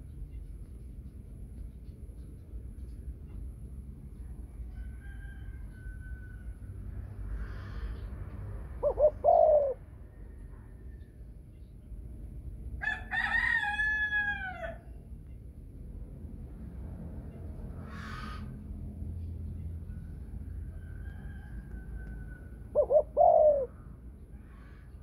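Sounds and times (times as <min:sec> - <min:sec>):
rooster crowing: 0:04.7 - 0:06.7, 0:12.8 - 0:14.9, 0:20.6 - 0:23.6
dove cooing: 0:08.8 - 0:09.8, 0:22.7 - 0:23.8.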